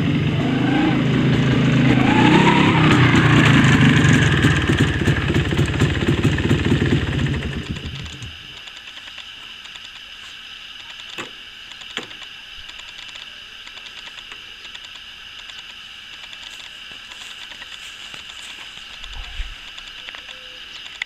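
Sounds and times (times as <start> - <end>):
sharp clicks: 7.6 - 10.1, 10.8 - 21.0
insect-like chirring: 7.6 - 21.0.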